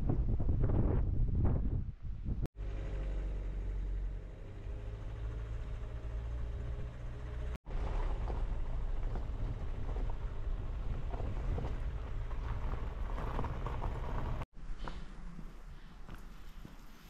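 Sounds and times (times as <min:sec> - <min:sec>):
wind buffeting microphone: 0:00.0 - 0:02.5, 0:07.8 - 0:14.4
low rumble: 0:00.0 - 0:15.7.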